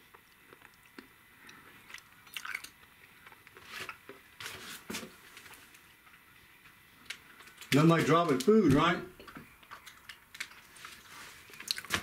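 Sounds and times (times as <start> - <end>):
chewing crunchy snack: 0.0 - 4.3, 9.6 - 12.0.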